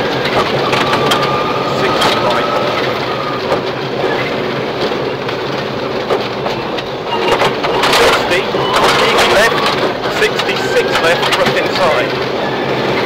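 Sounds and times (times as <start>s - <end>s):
rattling: 0.0s - 12.4s
rally car engine running hard: 0.0s - 13.0s
tyre and gravel noise: 0.0s - 13.0s.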